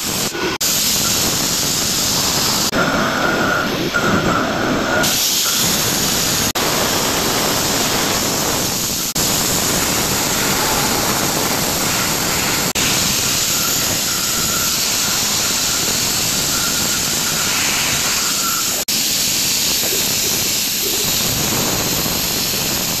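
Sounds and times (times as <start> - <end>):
milling machine cutting metal: 3.6 - 23.0
faint high whine: 9.1 - 18.9.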